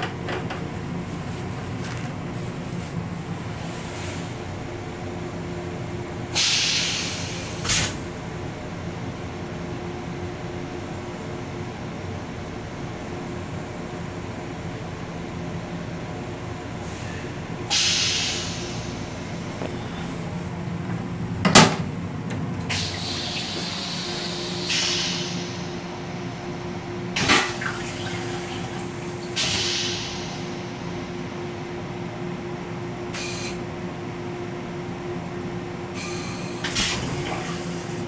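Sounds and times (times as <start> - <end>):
train rumble and hum: 0.0 - 38.0
toilet seat clunks: 21.4 - 22.4.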